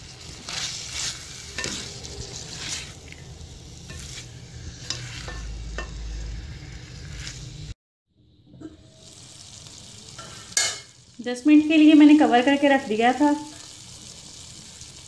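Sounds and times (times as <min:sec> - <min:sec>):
spatula scraping a pan: 0:00.0 - 0:07.8
vegetables sizzling in a pan: 0:00.0 - 0:15.0.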